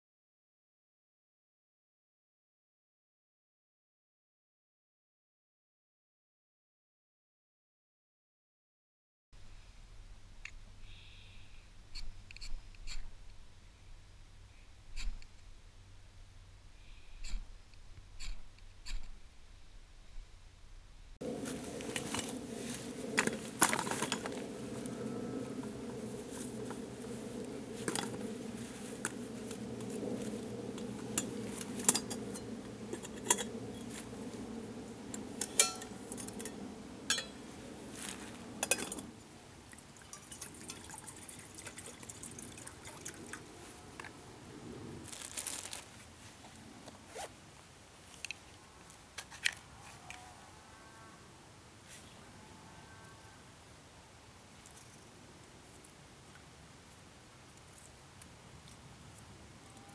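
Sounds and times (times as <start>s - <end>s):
camp stove burning: 21.2s - 39.4s
metal cookware clinking: 35.4s - 37.4s, 38.6s - 39.0s.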